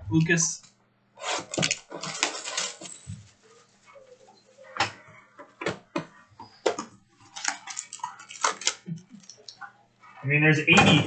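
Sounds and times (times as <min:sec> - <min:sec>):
cards clicking and snapping: 0:06.8 - 0:09.6.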